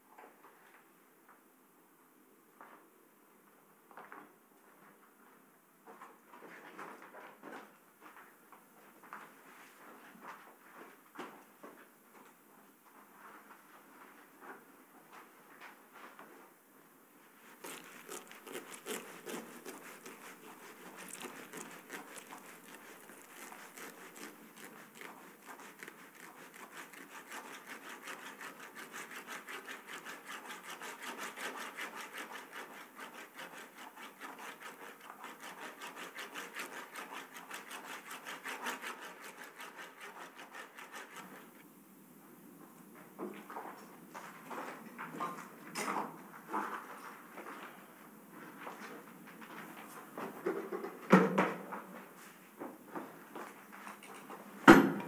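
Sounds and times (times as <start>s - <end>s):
rapid rasping scratching: 17.4s - 41.6s.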